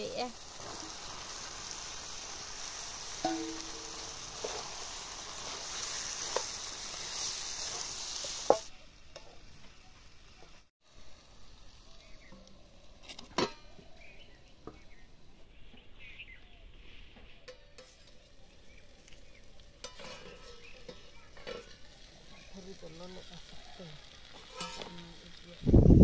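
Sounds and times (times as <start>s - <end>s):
chicken sizzling in hot oil: 0.0s - 15.0s, 17.7s - 26.0s
steel lid clanking: 3.2s - 4.7s, 19.8s - 21.8s, 24.4s - 25.3s
spatula scraping a steel pan: 19.8s - 21.9s.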